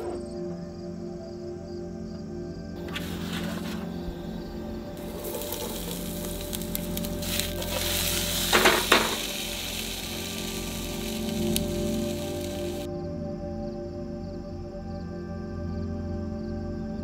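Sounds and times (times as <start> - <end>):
pan scraping: 2.8 - 4.0, 5.0 - 12.9
potatoes sizzling in oil: 5.0 - 12.9.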